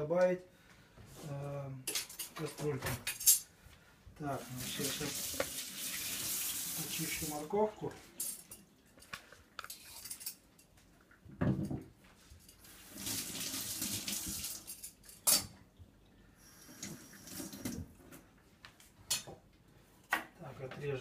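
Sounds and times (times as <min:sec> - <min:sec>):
utensils clattering: 0:01.9 - 0:03.5, 0:08.2 - 0:10.7.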